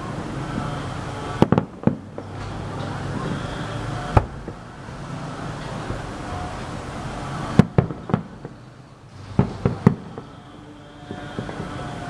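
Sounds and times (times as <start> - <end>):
firework shells bursting: 0.5 - 4.7, 7.4 - 12.0.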